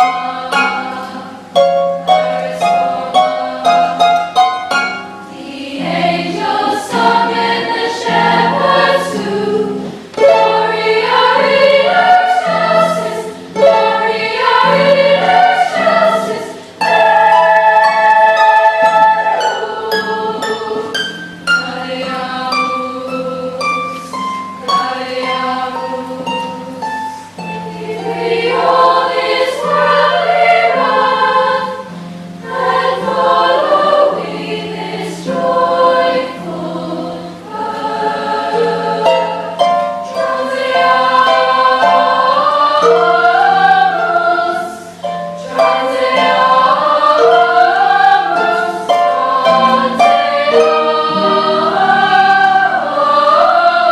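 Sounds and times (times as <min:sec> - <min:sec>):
harp plucking notes and chords: 0:00.0 - 0:34.6, 0:37.3 - 0:44.2
girls' choir singing: 0:00.0 - 0:53.9.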